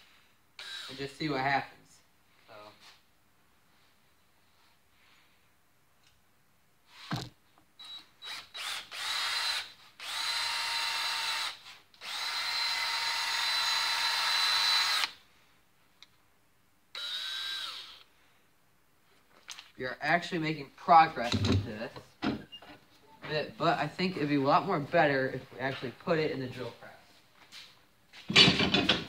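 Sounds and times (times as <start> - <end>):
cordless drill whining: 0.6 - 1.0, 7.8 - 15.2, 16.9 - 18.1.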